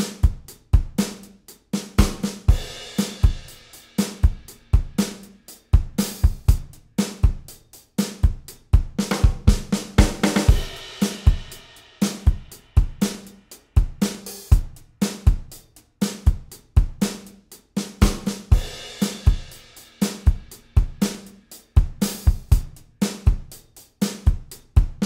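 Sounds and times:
drum kit beat: 0.0 - 25.0.

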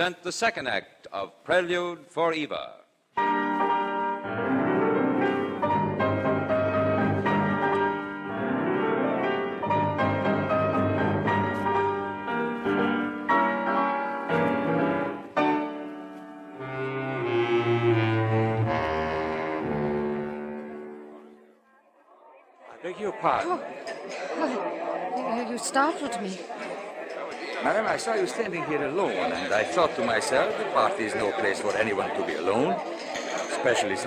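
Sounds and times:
orchestral music: 3.2 - 21.4.

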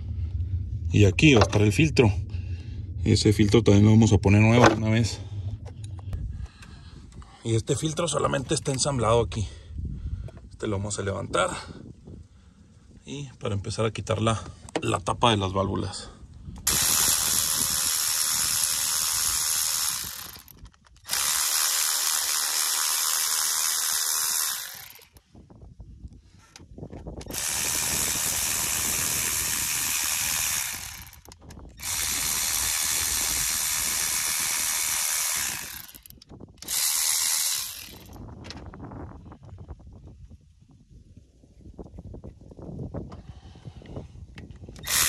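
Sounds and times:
power ratchet spinning bolts: 16.7 - 25.3, 27.2 - 38.4, 44.7 - 45.0.

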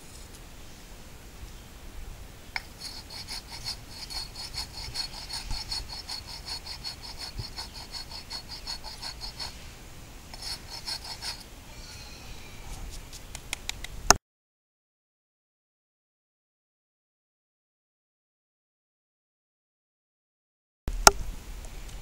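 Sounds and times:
concrete scraping on concrete: 2.6 - 9.7, 10.3 - 13.3.

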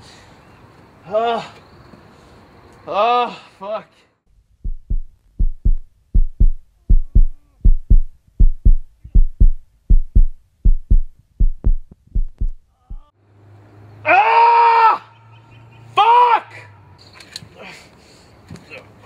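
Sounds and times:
low hum: 4.4 - 13.1
heartbeat thumps: 4.6 - 13.1
loud drawn-out cry: 14.0 - 15.2.

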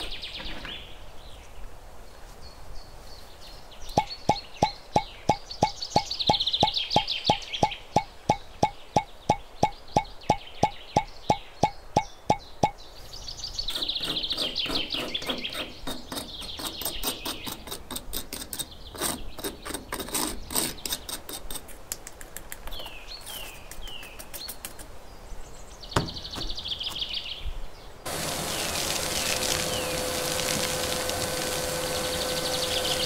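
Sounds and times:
birds chirping: 0.0 - 21.7, 22.4 - 33.0
metal trowel scraping and tapping: 7.0 - 12.8, 13.7 - 21.8
small vacuum motor running: 28.1 - 33.0.

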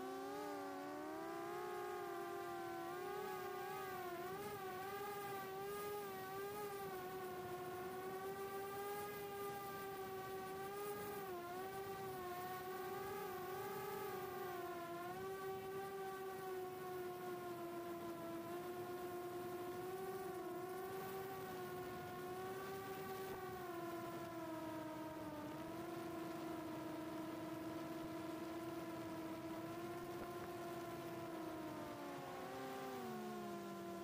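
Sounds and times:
drone motors whining: 0.0 - 34.0.

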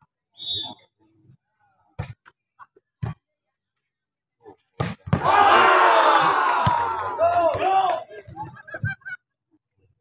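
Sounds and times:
crowd shouting and cheering: 5.1 - 8.6.

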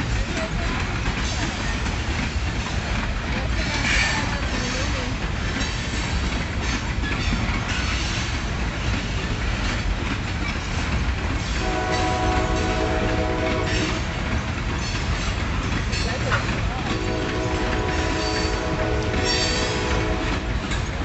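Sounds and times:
freight train rumble and clatter: 0.0 - 21.0
train horn chord: 11.6 - 14.2, 16.9 - 20.6.

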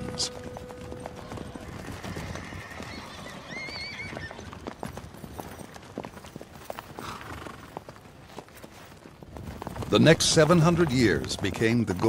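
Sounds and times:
horses galloping on stony ground: 0.0 - 12.0
horse whinnying: 1.5 - 4.6, 7.0 - 7.8.

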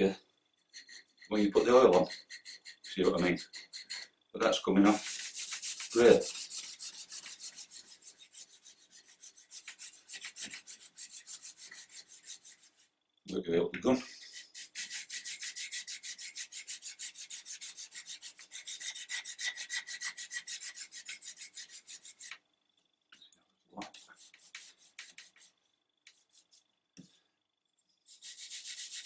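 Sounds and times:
abrasive pad scrubbing wood: 4.8 - 12.8.

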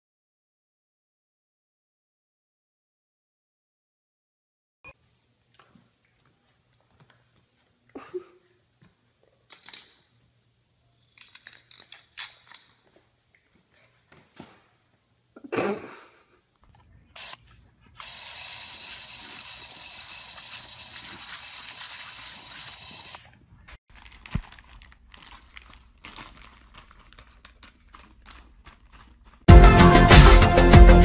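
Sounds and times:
plastic bag crinkling: 19.2 - 29.5.

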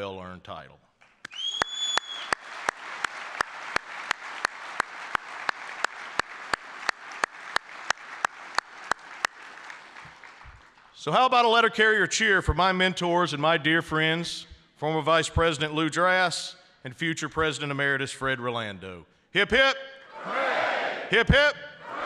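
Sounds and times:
audience applauding: 1.0 - 11.0
hands clapping close to microphone: 1.0 - 11.0.

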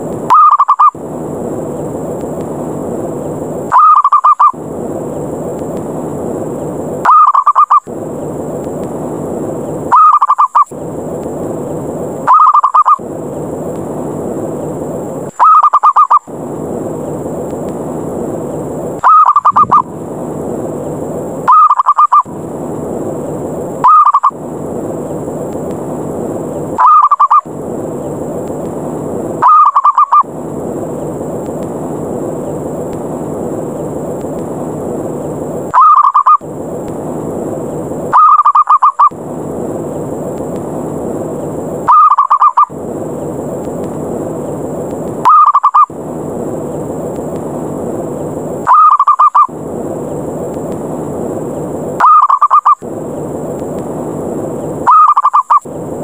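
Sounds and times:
steady noisy hiss: 0.0 - 56.0
dove rolling call: 0.3 - 1.0, 3.7 - 4.6, 7.0 - 7.9, 9.9 - 10.7, 12.2 - 13.0, 15.4 - 16.3, 19.0 - 19.9, 21.4 - 22.3, 23.8 - 24.4, 26.8 - 27.5, 29.4 - 30.3, 35.7 - 36.4, 38.1 - 39.2, 41.8 - 42.8, 45.2 - 46.0, 48.6 - 49.6, 52.0 - 52.8, 54.8 - 55.6.

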